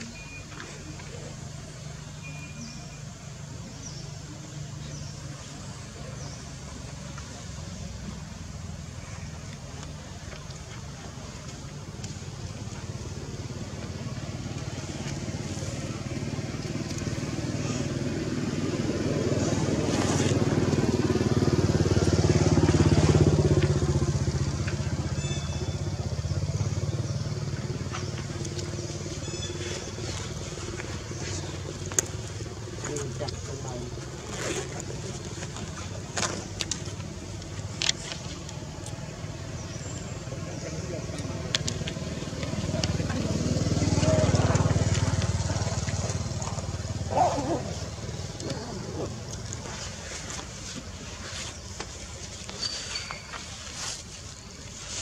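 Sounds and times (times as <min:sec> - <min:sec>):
faint high chirps: 0:00.0 - 0:01.3, 0:02.1 - 0:03.1
small engine running: 0:39.2 - 0:51.4.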